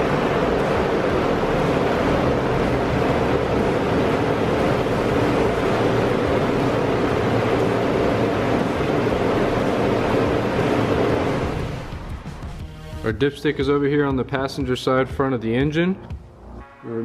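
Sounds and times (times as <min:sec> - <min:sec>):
car engine running: 0:00.0 - 0:12.8.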